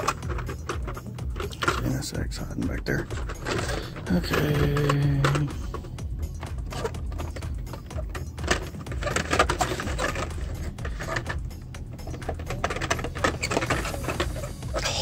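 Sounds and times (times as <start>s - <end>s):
toy cars in plastic packs clacking: 0.0s - 15.0s
low rumble: 2.2s - 9.1s.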